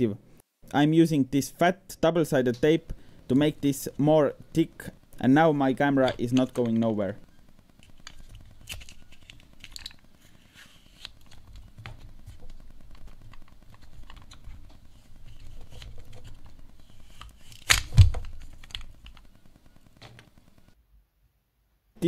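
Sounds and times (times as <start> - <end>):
plastic clicks and rubbing: 7.8 - 19.4.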